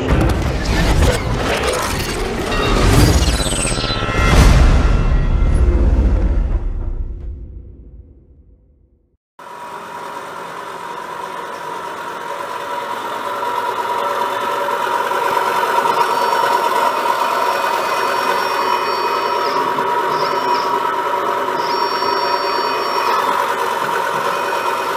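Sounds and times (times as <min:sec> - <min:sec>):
machine hum over hiss: 0:09.4 - 0:24.9.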